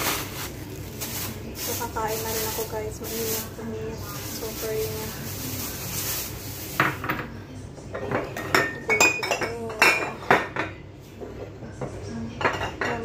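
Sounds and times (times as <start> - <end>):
metal utensils clinking on dishes: 12.4 - 13.0.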